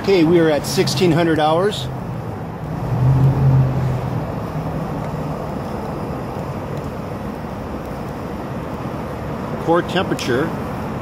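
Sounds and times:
gas torch burning: 0:00.0 - 0:11.0.

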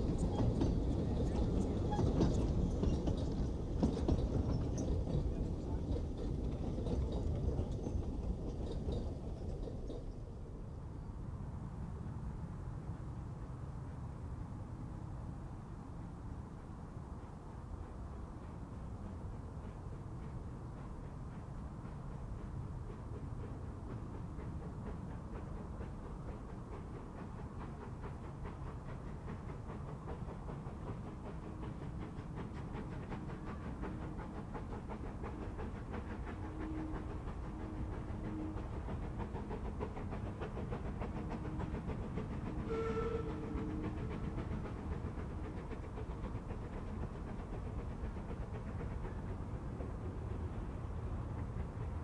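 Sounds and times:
steam locomotive running: 0:00.0 - 0:52.0
steam whistle blast: 0:42.6 - 0:43.8.

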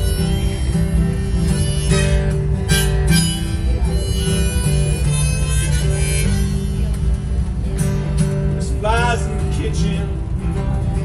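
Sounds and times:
harmonica melody: 0:00.0 - 0:07.6
strummed acoustic guitar: 0:00.0 - 0:11.0.

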